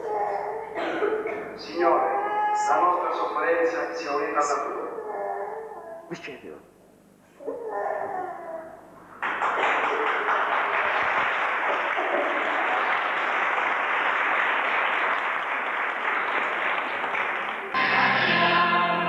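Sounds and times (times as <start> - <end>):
audience applauding: 9.2 - 18.0
music with singing: 17.8 - 19.0.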